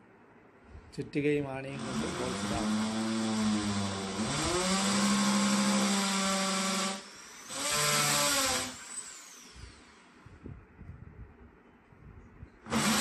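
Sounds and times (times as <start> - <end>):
electric drill boring into wood: 1.8 - 10.1, 12.7 - 13.0.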